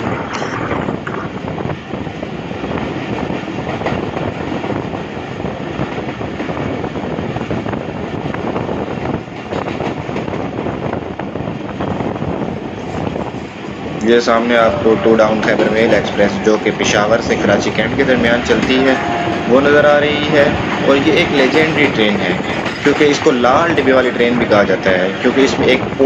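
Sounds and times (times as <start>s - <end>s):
train wheels rumbling on rails: 0.0s - 26.0s
wheels clacking over rail joints: 20.5s - 24.5s.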